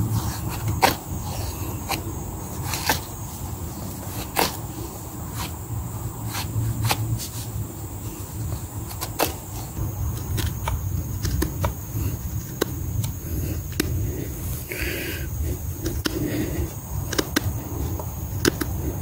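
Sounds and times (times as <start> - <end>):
blade carving wood: 0.0 - 5.6, 6.2 - 7.4, 8.5 - 19.0.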